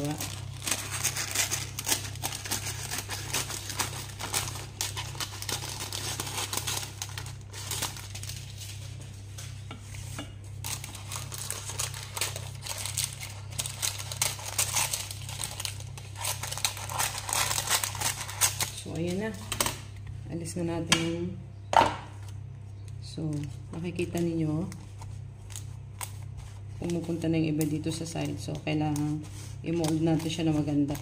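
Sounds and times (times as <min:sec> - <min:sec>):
scissors cutting paper: 0:00.0 - 0:08.0, 0:10.7 - 0:19.2, 0:29.7 - 0:31.0
baking paper rustling: 0:00.0 - 0:19.6, 0:23.3 - 0:31.0.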